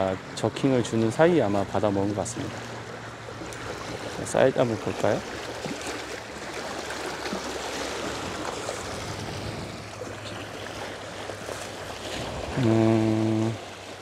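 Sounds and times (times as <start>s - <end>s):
waves washing over rocks: 3.1s - 14.0s.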